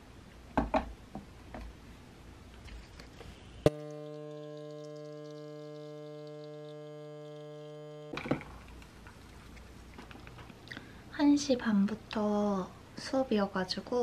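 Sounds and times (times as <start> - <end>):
espresso machine pump humming: 3.7 - 9.4.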